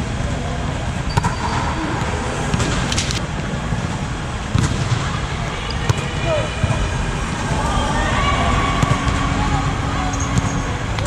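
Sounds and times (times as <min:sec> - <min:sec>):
steady low rumble: 0:00.0 - 0:11.0
volleyball being struck: 0:08.8 - 0:09.4.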